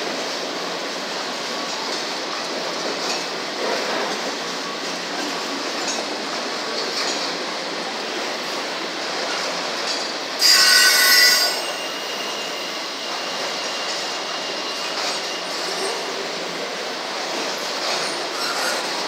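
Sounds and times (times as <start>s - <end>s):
freight cars rolling and clattering: 1.6s - 10.2s, 13.3s - 19.0s
wheels squealing on rail: 9.9s - 19.0s.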